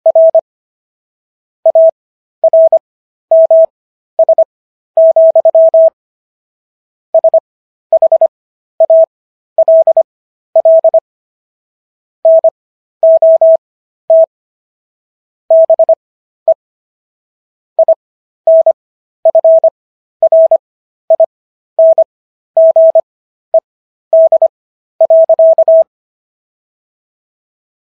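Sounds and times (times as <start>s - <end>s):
morse code tone: 1.7s - 6.0s, 7.2s - 7.4s, 8.0s - 10.0s, 10.6s - 11.0s, 12.3s - 14.3s, 15.5s - 16.6s, 17.8s - 23.0s, 24.2s - 25.9s.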